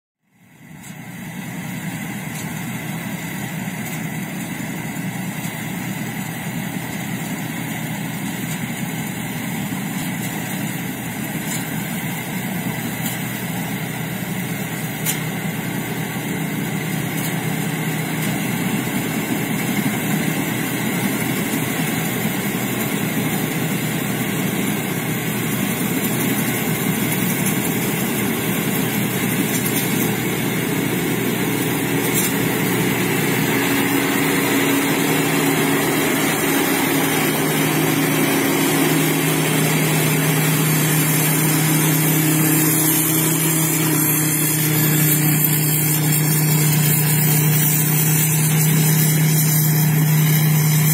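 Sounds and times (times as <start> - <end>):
combine harvester engine and threshing: 0.3 - 50.9.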